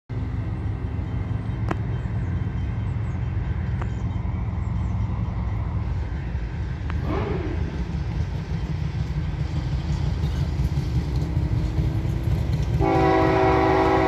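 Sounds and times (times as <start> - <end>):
freight train rumble: 0.1 - 14.0.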